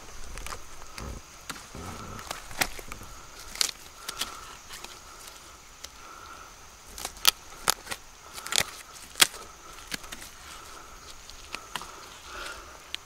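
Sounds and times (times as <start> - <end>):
palm fibres crackling and snapping: 0.0 - 13.0.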